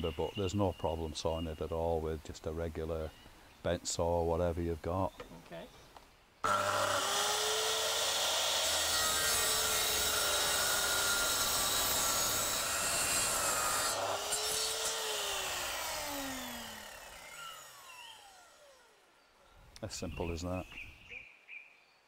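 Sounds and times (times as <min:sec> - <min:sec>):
mitre saw cutting plastic: 0:06.4 - 0:18.8.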